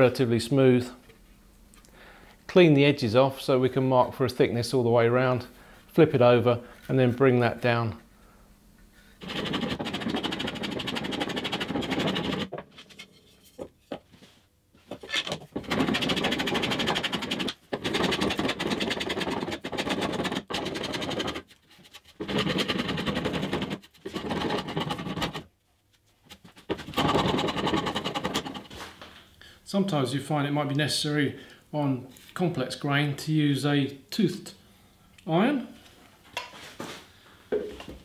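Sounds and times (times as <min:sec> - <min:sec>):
hand plane rasping on wood: 0:09.2 - 0:12.5, 0:15.6 - 0:21.4, 0:22.1 - 0:25.4, 0:26.8 - 0:28.7.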